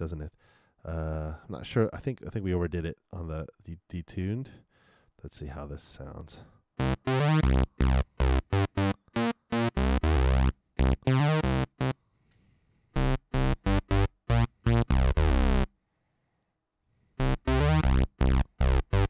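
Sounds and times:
staccato synth bass line: 0:06.8 - 0:12.0, 0:13.0 - 0:15.7, 0:17.2 - 0:19.0.

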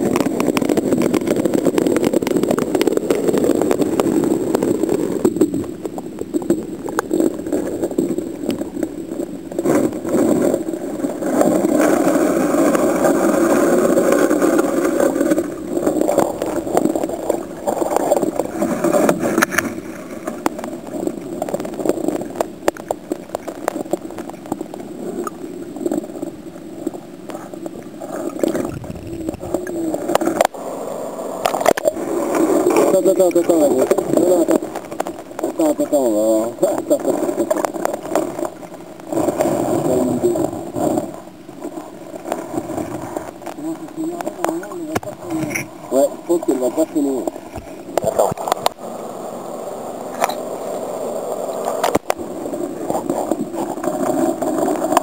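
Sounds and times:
underwater clicks and knocks: 0:00.0 - 0:30.6, 0:32.7 - 0:35.8, 0:36.7 - 0:39.9, 0:40.7 - 0:45.8, 0:47.2 - 0:48.8, 0:51.7 - 0:52.2
muffled underwater river rushing: 0:00.0 - 0:55.0.

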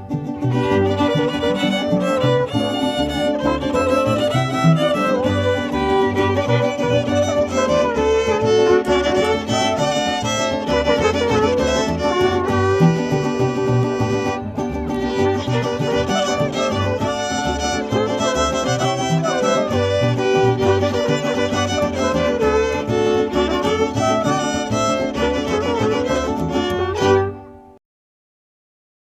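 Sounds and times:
rhythmic bass line: 0:00.0 - 0:27.2
violin melody: 0:00.0 - 0:27.8.

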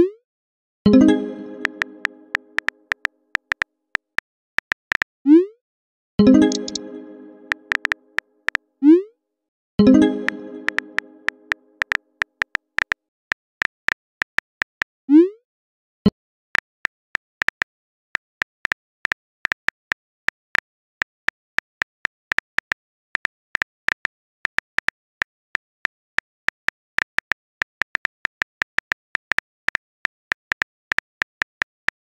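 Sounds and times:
smartphone keyboard clicks: 0:06.5 - 0:06.8, 0:07.5 - 0:08.6, 0:10.7 - 0:13.0.

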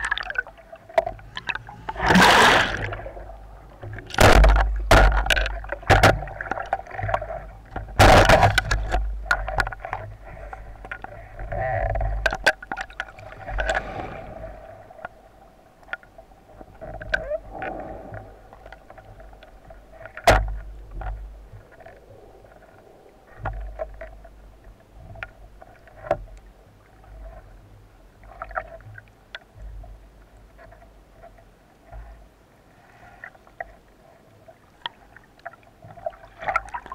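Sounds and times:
underwater wave surge and gurgling: 0:00.0 - 0:08.9, 0:09.8 - 0:24.9
underwater clicks and knocks: 0:00.0 - 0:14.1, 0:15.8 - 0:27.5, 0:28.2 - 0:32.2, 0:34.8 - 0:36.9.

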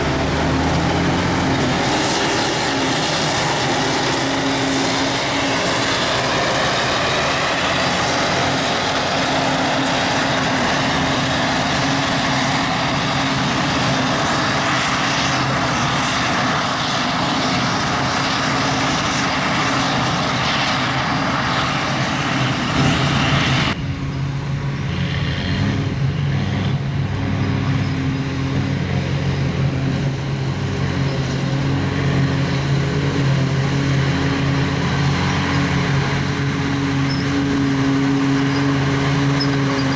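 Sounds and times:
rush of chopped grass: 0:00.0 - 0:20.7
harvester engine drone: 0:00.0 - 0:39.9.

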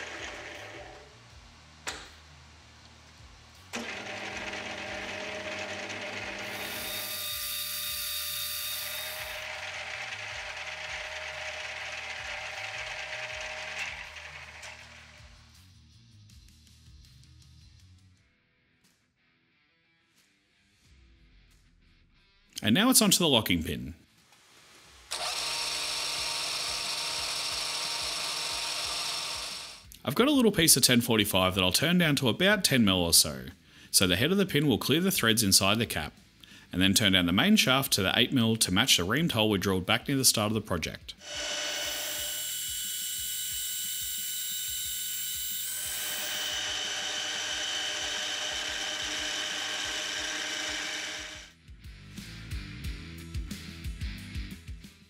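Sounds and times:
metal lathe motor whine: 0:00.0 - 0:01.0, 0:03.8 - 0:15.2, 0:25.1 - 0:29.8, 0:41.2 - 0:51.5
cutting tool hissing on steel: 0:06.5 - 0:09.4, 0:41.2 - 0:51.5.

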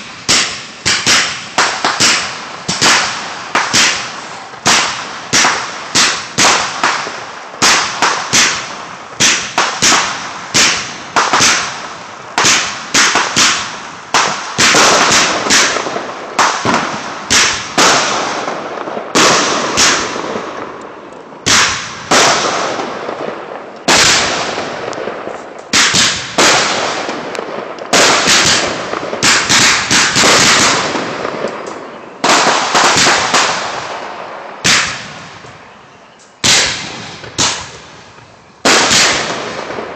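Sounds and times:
fireworks bursting with echo: 0:00.0 - 0:39.9.

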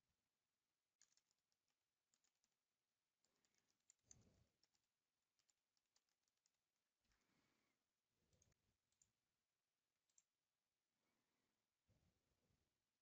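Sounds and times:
keyboard typing: 0:00.8 - 0:07.2, 0:08.2 - 0:09.3, 0:10.0 - 0:10.4.

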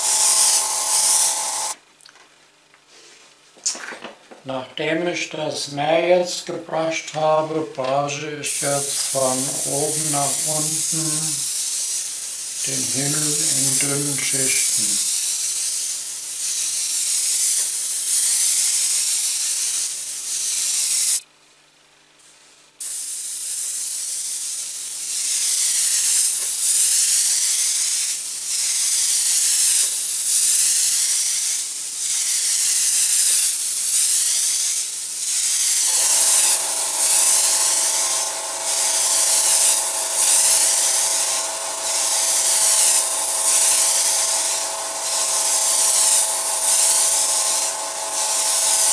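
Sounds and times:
airbrush spraying hiss: 0:00.0 - 0:01.8, 0:08.5 - 0:21.2, 0:22.8 - 0:48.9
steady hum: 0:00.0 - 0:01.8, 0:35.8 - 0:48.9.

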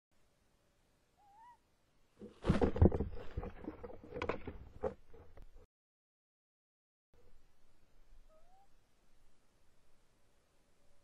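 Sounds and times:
owl wavering call: 0:01.2 - 0:01.7, 0:08.2 - 0:08.8.

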